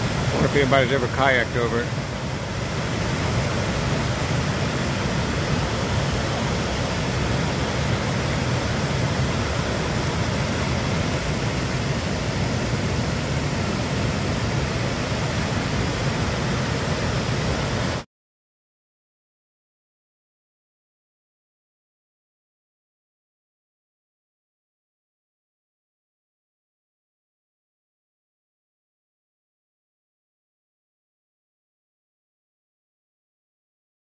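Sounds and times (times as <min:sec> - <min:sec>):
waterfall rushing over rocks: 0:00.0 - 0:18.0.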